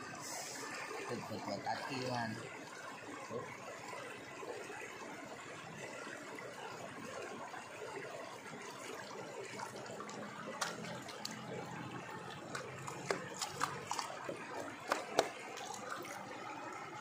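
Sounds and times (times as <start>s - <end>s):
water sloshing in a pan: 0.0s - 17.0s
short sharp splashes: 10.4s - 11.5s, 12.4s - 16.2s.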